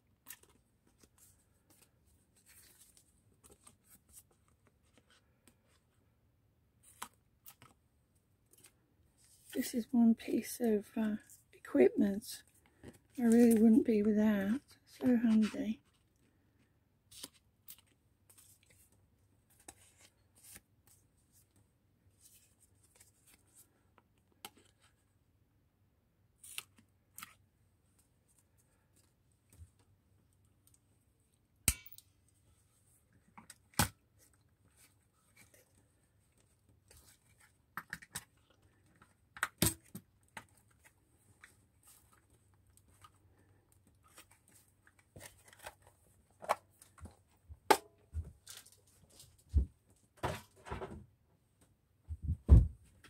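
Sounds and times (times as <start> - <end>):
paper rustling: 0.2 - 5.8.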